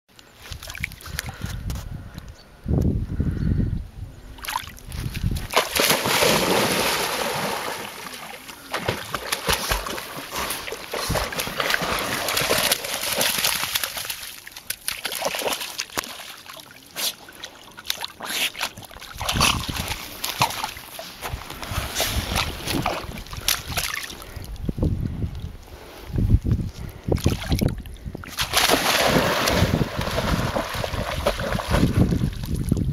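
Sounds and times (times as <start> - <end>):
dog splashing through water: 5.4 - 24.2, 28.3 - 32.7.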